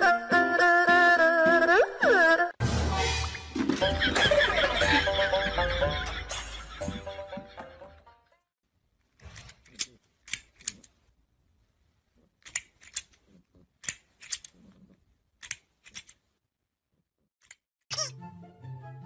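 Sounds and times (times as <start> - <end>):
music: 0.0 - 8.5, 17.9 - 19.0.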